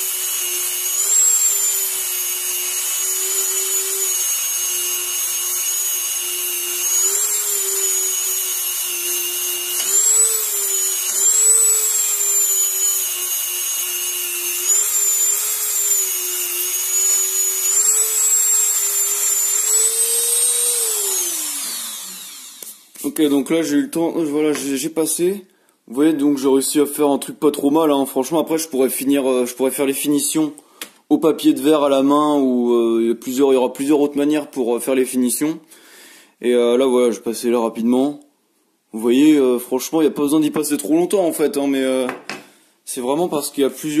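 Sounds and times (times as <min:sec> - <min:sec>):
rotary tool grinding whine: 0:00.0 - 0:23.0.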